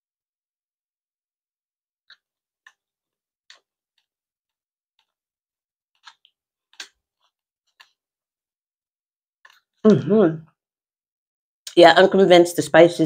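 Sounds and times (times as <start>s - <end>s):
chewing: 6.0s - 8.0s.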